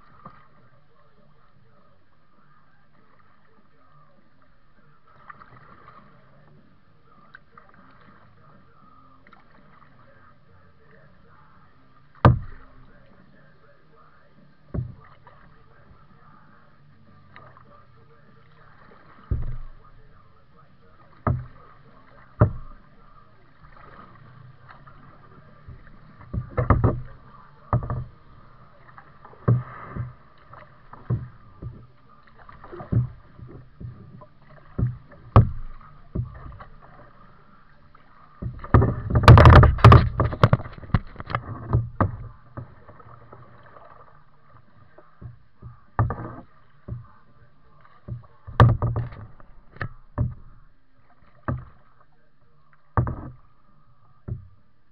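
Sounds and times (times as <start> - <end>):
paddle splashing water: 0.0 - 54.9
paddle knocking against hull: 10.9 - 13.5, 14.2 - 54.9.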